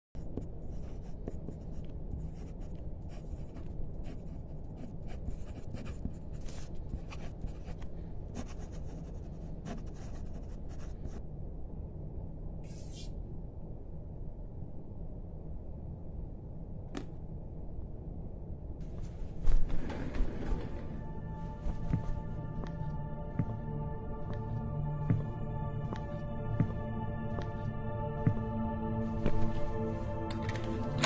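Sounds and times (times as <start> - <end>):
steady low hum: 0.2 - 31.0.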